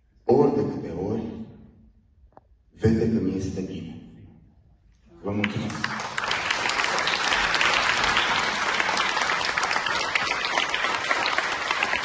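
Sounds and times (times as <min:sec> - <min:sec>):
audience applauding: 0:05.3 - 0:12.0.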